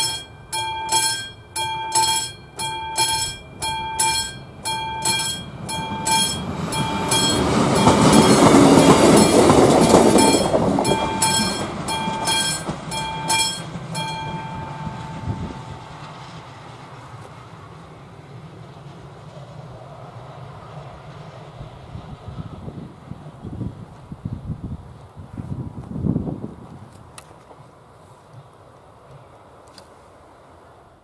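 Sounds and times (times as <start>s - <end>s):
level crossing warning bell: 0.0s - 16.5s
diesel railcar rumble: 0.0s - 31.0s.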